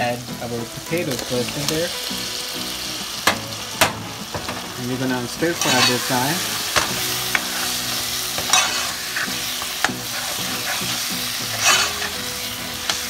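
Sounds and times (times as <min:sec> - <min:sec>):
potatoes sizzling in sauce: 0:00.0 - 0:13.0
metal spoon scraping pot: 0:08.4 - 0:09.4, 0:11.5 - 0:12.1.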